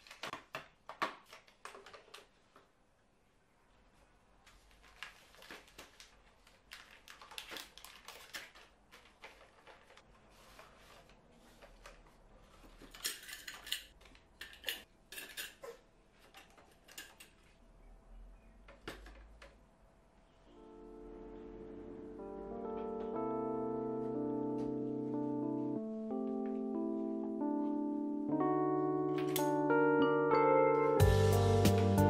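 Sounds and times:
metal utensils clinking: 12.8s - 17.4s.

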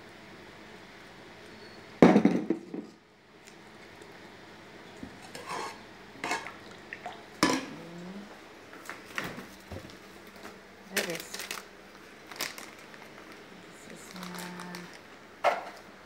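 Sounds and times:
metal spoon scraping saucepan: 5.2s - 6.5s.

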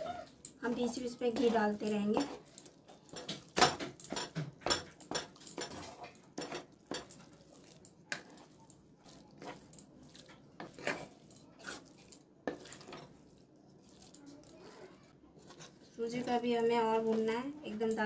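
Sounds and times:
wooden spatula scraping metal pan: 0.0s - 18.0s.

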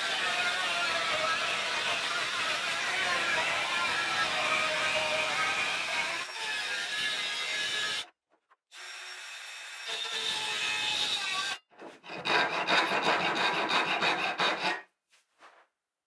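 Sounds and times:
handsaw cutting plywood: 11.4s - 14.9s.

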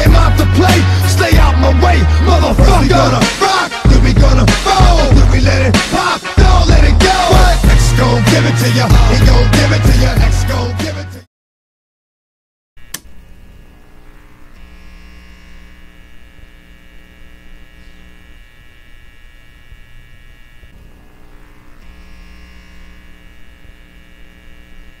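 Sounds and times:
steady electric hum: 12.8s - 25.0s.

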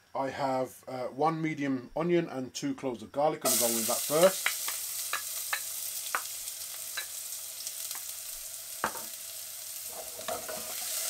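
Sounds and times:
crackles and pops of frying: 3.4s - 11.0s
onion frying in hot oil: 3.4s - 11.0s.

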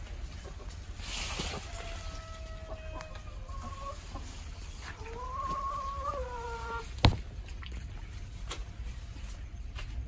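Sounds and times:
chicken calling: 1.4s - 7.0s.

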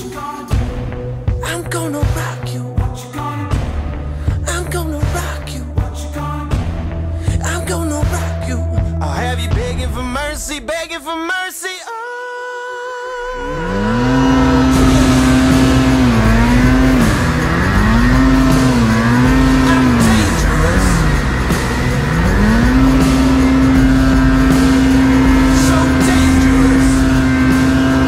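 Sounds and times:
snowmobile engine revving: 13.2s - 28.0s.

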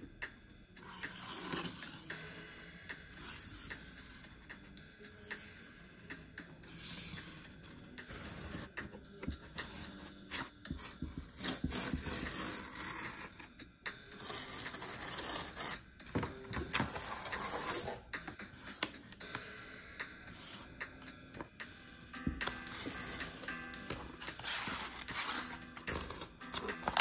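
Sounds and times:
utility knife scoring cardboard: 9.3s - 13.4s, 14.2s - 18.0s, 22.4s - 27.0s
marker rasping across cardboard: 24.2s - 26.0s.

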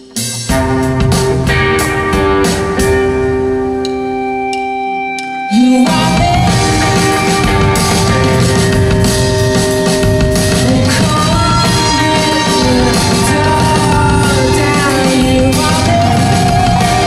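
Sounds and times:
live rock band playing: 0.0s - 17.0s
drum hits: 5.9s - 17.0s.

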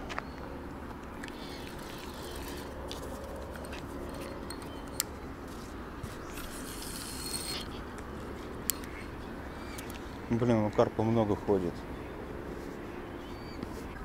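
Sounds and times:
low outdoor background: 0.0s - 14.0s.

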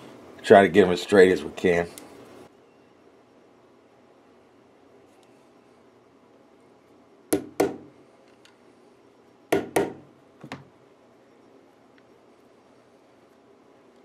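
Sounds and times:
sharp wooden knocks: 7.3s - 7.9s, 9.5s - 10.6s.

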